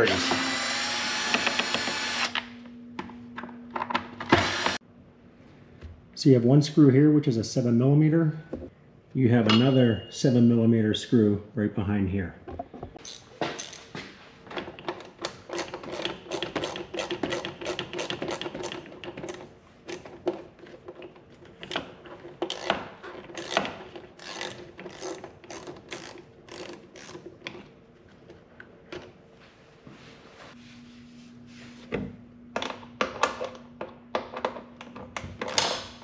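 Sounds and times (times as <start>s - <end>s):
hand ratchet clicking: 15.3s - 20.0s, 22.5s - 22.8s, 23.4s - 27.2s.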